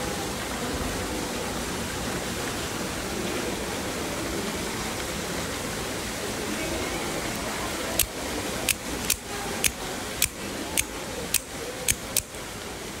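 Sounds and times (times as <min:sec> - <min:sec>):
knife blade snapping clicks: 0:08.7 - 0:12.4.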